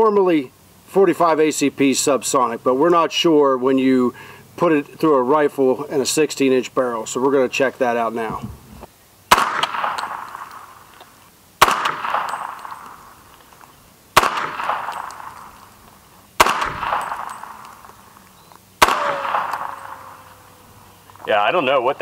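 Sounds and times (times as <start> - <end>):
rifle gunshots: 9.3 - 10.9, 11.6 - 13.3, 14.1 - 15.8, 16.4 - 18.1, 18.8 - 20.6.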